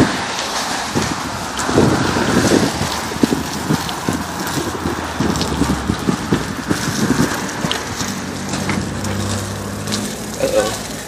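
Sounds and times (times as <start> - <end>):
low vehicle engine hum: 0.0 - 11.0
wind on microphone: 0.0 - 11.0
bike knocks and rattles: 0.9 - 11.0.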